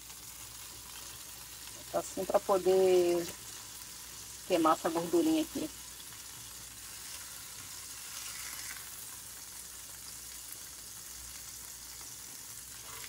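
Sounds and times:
meat sizzling in a pan: 0.0 - 13.0.

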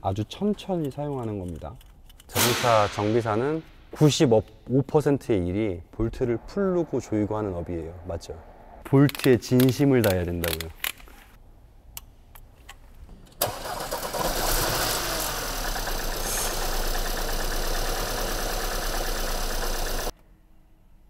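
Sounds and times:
car engine starting: 13.3 - 20.1
car engine idling roughly: 14.3 - 20.1.

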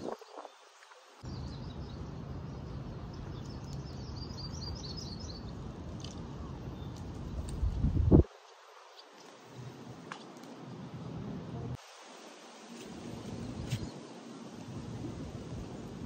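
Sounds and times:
low wind rumble on microphone: 0.0 - 8.4, 12.7 - 16.0
songbirds chirping: 0.0 - 11.8.

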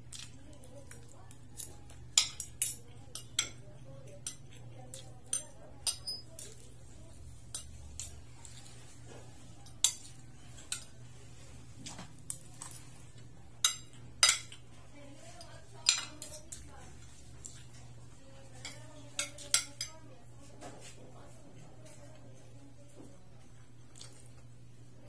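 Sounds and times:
cutlery clinking and scraping on plate: 1.6 - 6.7, 7.4 - 11.0, 11.8 - 14.7, 15.3 - 17.9, 18.6 - 20.0.

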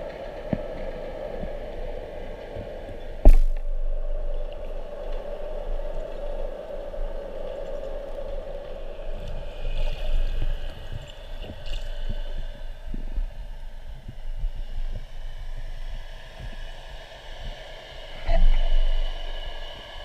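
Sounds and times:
muffled underwater hum: 0.1 - 19.9.

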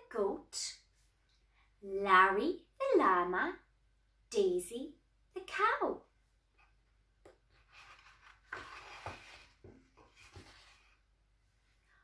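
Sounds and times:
paper page rustling: 7.6 - 11.0.

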